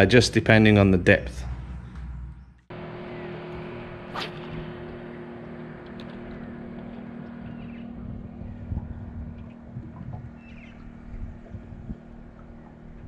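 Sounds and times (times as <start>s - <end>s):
wind: 0.0s - 13.0s
electric motor humming: 1.7s - 13.0s
water noise: 2.8s - 13.0s
fishing rod swish: 4.1s - 4.8s.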